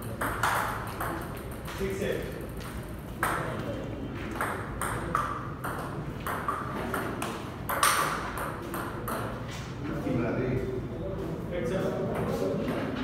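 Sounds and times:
table tennis ball clicks: 4.4 - 9.3.

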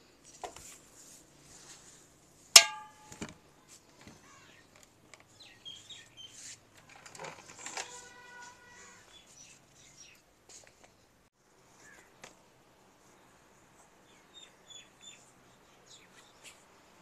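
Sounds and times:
rope webbing rustling: 6.3 - 9.7.

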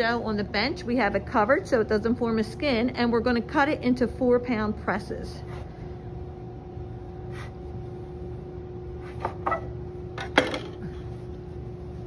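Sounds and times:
background hum: 0.0 - 12.0.

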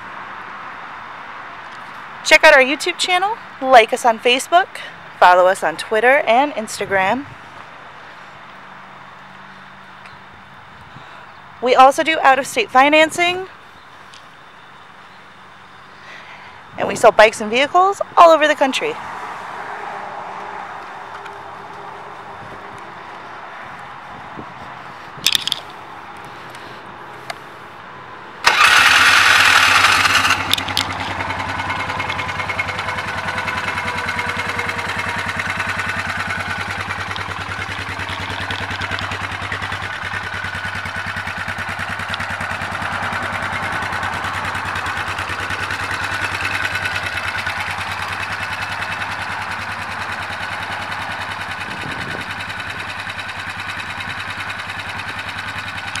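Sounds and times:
engine cranking: 25.3 - 25.8, 28.4 - 56.0
engine idling: 28.4 - 56.0.

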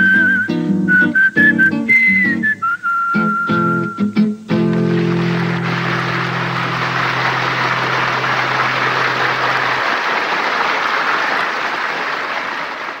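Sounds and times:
acoustic guitar chord ringing: 0.0 - 9.8
audience applauding: 4.6 - 13.0.

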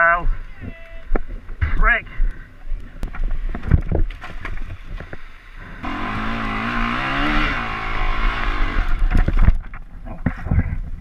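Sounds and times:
motorcycle engine running: 5.8 - 9.2.

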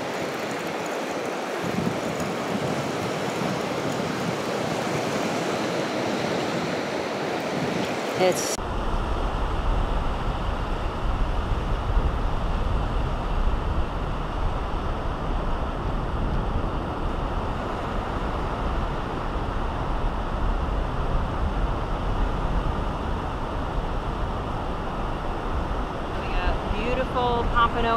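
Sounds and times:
breaking surf: 0.0 - 10.9
wind rumble on microphone: 0.0 - 27.9.

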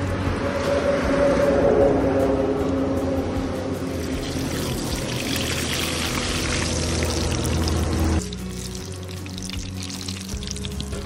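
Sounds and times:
food deep-frying in oil: 4.0 - 11.0.

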